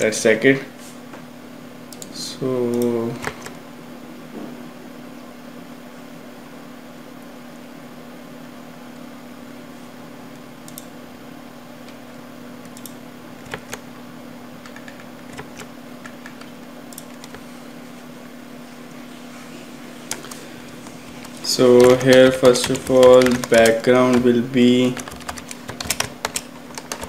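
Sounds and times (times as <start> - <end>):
steady low hum: 0.0 - 27.0
keyboard and mouse clicks: 2.7 - 3.6, 12.6 - 13.8, 14.6 - 17.4, 20.1 - 24.3, 25.0 - 27.0.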